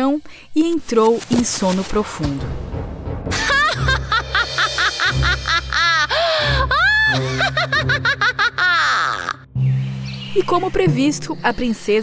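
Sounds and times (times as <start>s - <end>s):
cackling laugh: 3.3s - 9.4s
low musical drone: 9.4s - 11.9s.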